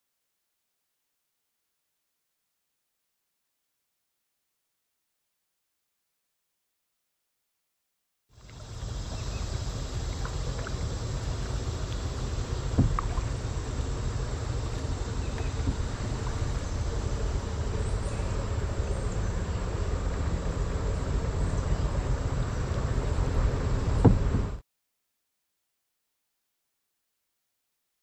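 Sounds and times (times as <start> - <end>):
faint insect buzz: 8.4 - 24.3
wind rumbling on microphone: 8.4 - 24.6.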